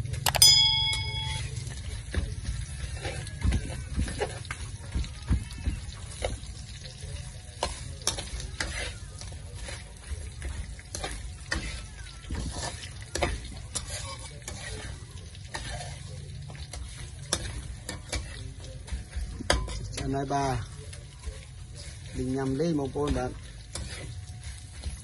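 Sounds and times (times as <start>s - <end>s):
food sizzling in oil: 0.0s - 25.0s
metal spatula scraping wok: 12.5s - 18.5s, 23.1s - 25.0s.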